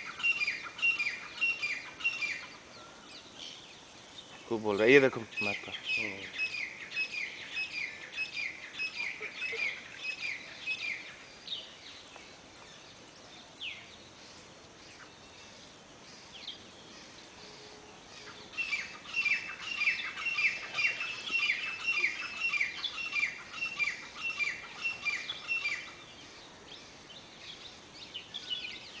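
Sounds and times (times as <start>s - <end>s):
partridge calling: 18.2s - 26.0s.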